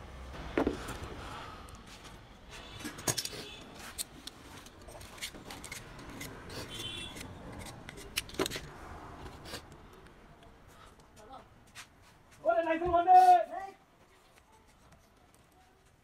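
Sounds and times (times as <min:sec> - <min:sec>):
utility knife cutting and scraping: 0:03.3 - 0:08.7.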